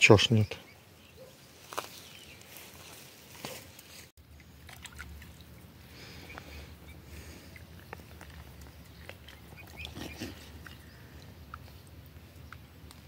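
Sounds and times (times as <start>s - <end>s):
faint water sounds: 2.4s - 13.0s.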